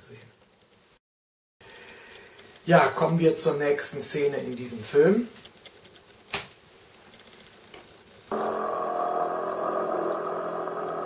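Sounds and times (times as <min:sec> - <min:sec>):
old film soundtrack held tones: 0:08.3 - 0:11.0.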